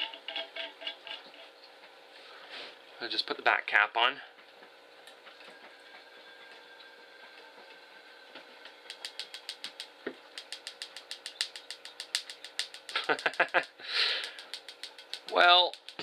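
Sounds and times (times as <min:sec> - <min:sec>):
spark igniter snapping: 0:08.9 - 0:16.0.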